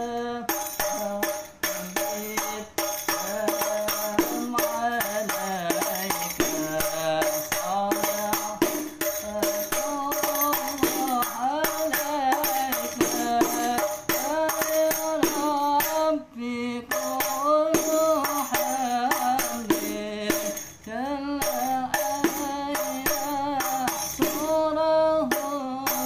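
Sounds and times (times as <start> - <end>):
man singing: 0.0 - 26.0
frame drum struck by hand: 0.5 - 16.0.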